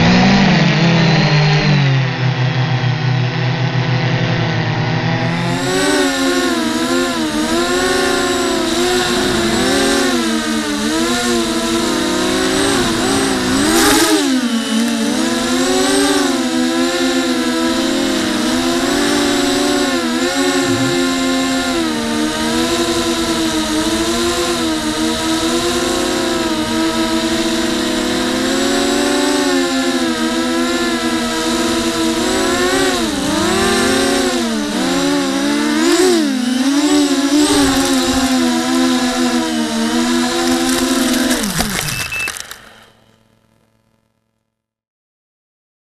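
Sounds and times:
quadcopter propellers whining: 0:00.0 - 0:43.1
brief sharp noise: 0:41.1 - 0:43.2.

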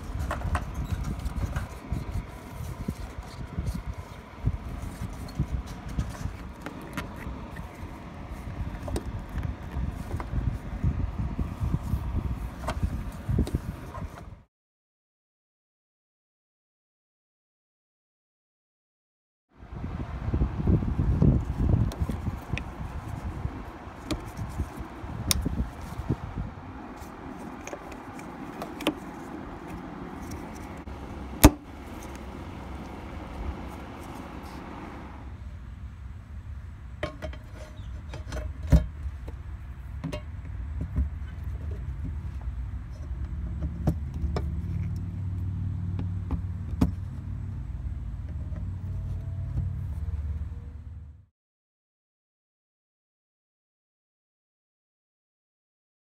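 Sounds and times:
steady low rumble: 0:00.0 - 0:13.9.

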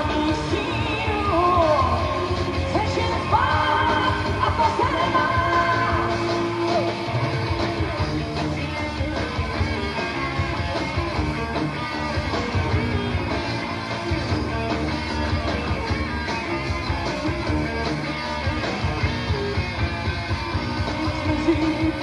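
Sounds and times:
rock song with guitar: 0:00.0 - 0:22.0.

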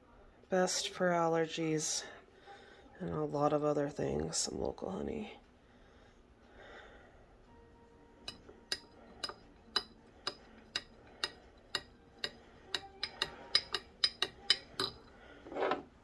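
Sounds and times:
spoon clinking in glass jar: 0:13.0 - 0:15.1.

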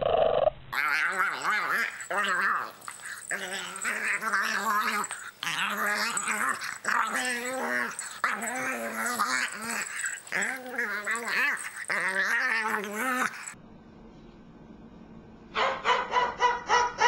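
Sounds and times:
puppy growling in play: 0:00.0 - 0:13.6.

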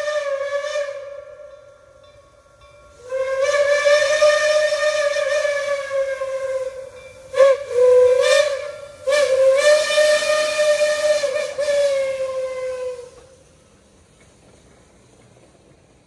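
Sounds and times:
steam whistle blasts: 0:00.0 - 0:01.7, 0:02.9 - 0:13.5.

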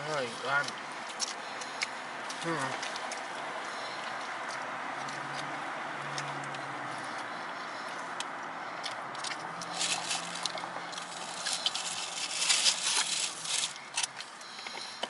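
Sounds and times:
aluminium foil crinkling: 0:09.3 - 0:14.3.

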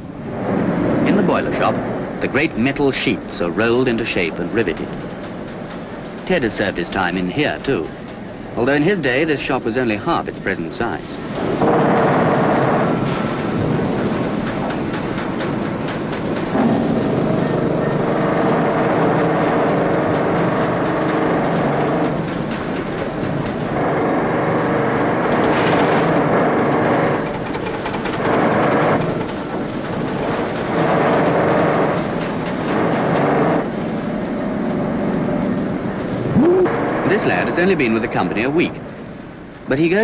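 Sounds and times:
pneumatic riveting hammers rattling: 0:11.3 - 0:34.4.

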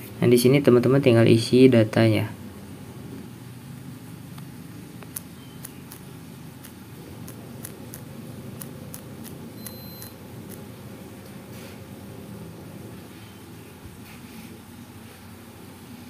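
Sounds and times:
low background hum: 0:00.0 - 0:16.0
high beep: 0:09.6 - 0:10.2.

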